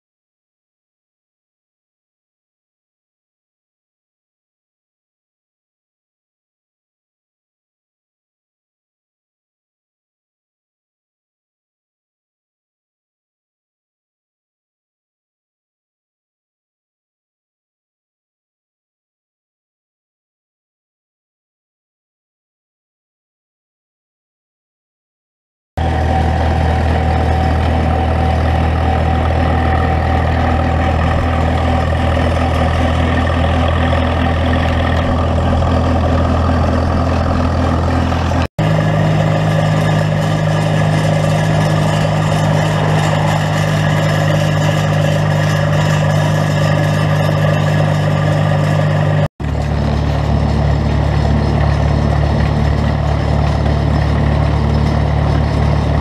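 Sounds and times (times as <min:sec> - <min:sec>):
tractor engine running: 0:25.8 - 0:56.0.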